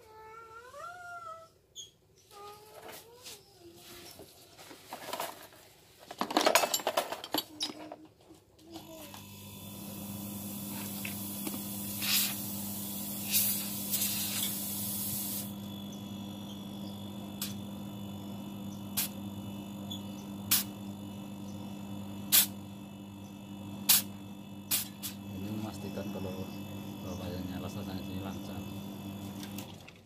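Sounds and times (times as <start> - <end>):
tools and copper tubing clattering: 4.9 - 8.4
compressor humming: 8.6 - 30.0
air hissing from pipe: 9.0 - 22.7, 23.3 - 29.7.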